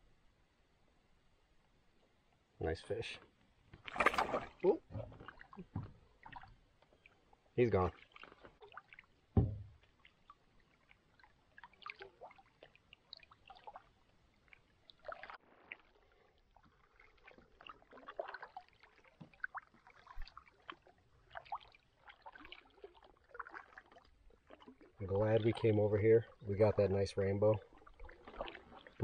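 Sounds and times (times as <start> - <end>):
water splashing and dripping: 3.7 - 29.0
low thump: 9.3 - 9.8.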